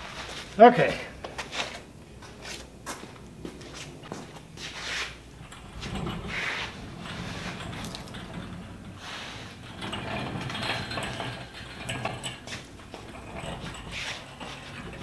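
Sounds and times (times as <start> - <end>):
engine hoist rattling and creaking: 4.0 - 15.0.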